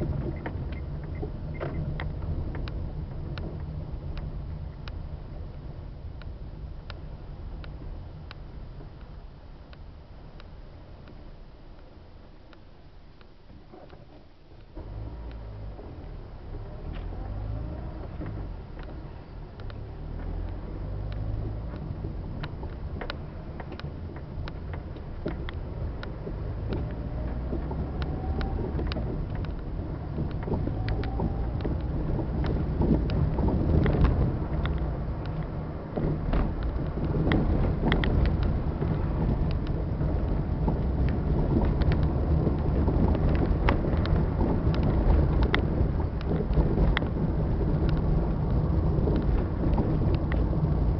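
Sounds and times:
car engine and tyre rumble: 0.0 - 50.9
small clicks and rattles: 16.6 - 50.9.

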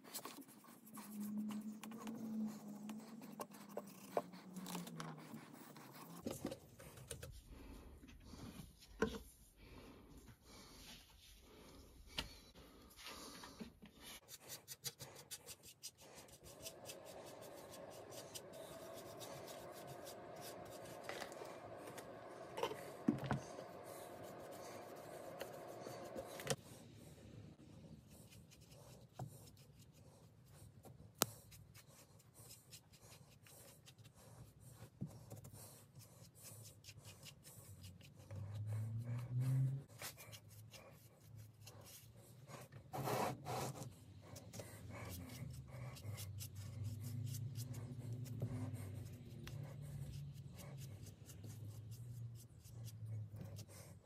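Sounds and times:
paintbrush rubbing on wood: 14.0 - 26.6.

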